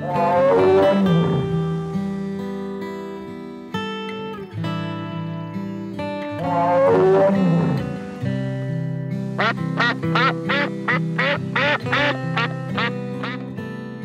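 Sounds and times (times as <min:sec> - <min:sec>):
background music: 0:00.0 - 0:14.0
duck quacking: 0:09.4 - 0:13.5.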